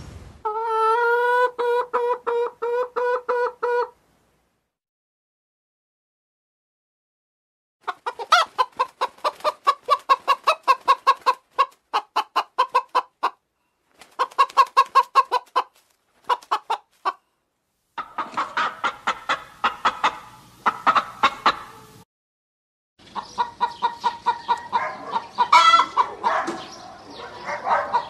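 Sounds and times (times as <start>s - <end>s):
background hiss: 0.0s - 0.5s
hens clucking: 0.4s - 4.0s, 7.8s - 13.4s, 14.0s - 17.2s, 18.0s - 22.0s, 23.0s - 28.0s.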